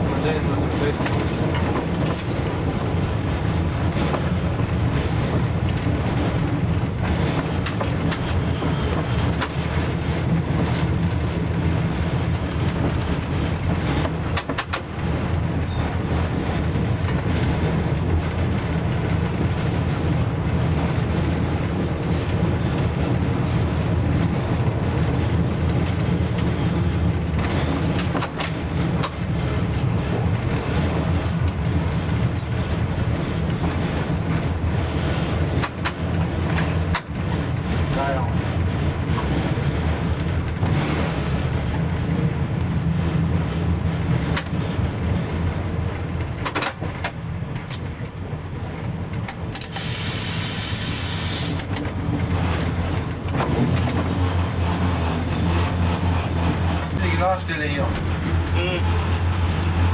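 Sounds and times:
diesel railbus engine running: 0.0s - 59.9s
high wheel squeal: 0.2s - 16.3s, 29.6s - 38.2s, 49.6s - 51.7s
rail-joint clatters: 0.4s - 11.4s, 12.1s - 19.4s, 25.7s - 29.4s, 30.0s - 38.0s, 46.1s - 48.2s, 48.8s - 50.4s, 51.4s - 59.9s.

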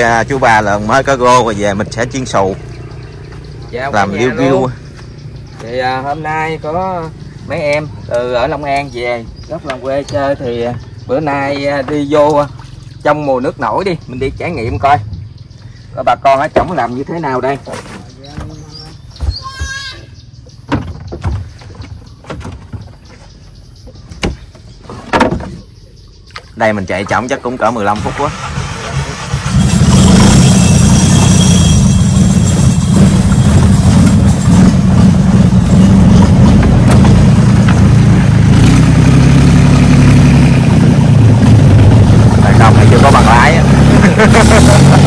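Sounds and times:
motorboat engine running: 0.0s - 16.0s, 27.0s - 45.0s
sharp knocks: 20.6s - 23.1s, 24.1s - 25.6s, 36.3s - 38.2s.

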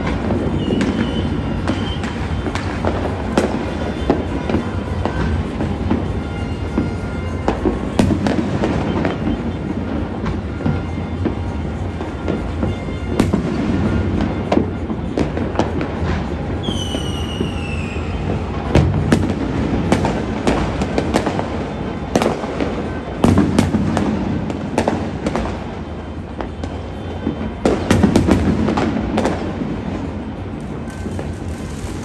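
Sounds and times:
rumble of distant fireworks: 0.0s - 32.0s
high falling whistle: 16.6s - 18.3s
sharp firecracker cracks: 30.5s - 32.0s.

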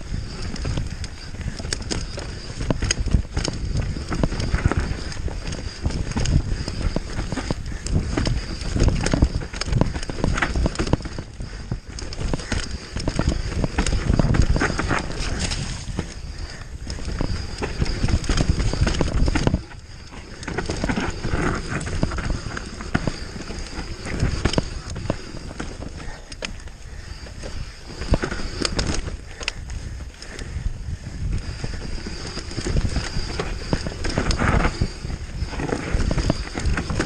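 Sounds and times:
wind rushing over microphone: 0.0s - 37.0s
bike knocks and rattles: 0.1s - 26.7s.

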